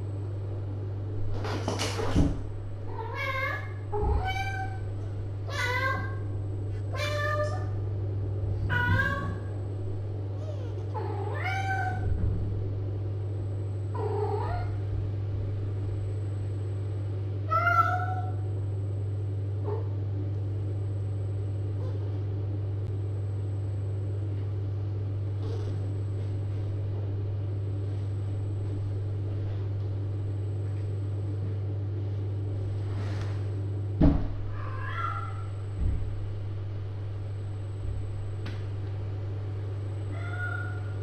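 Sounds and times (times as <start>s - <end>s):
low electrical hum: 0.0s - 41.0s
cats meowing: 5.5s - 6.2s, 8.6s - 9.5s, 34.5s - 35.5s, 40.1s - 41.0s.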